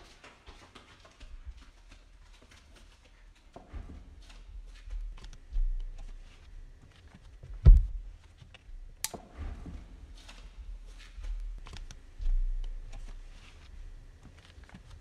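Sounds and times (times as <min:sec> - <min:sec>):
heavy thump: 0:07.5 - 0:08.1.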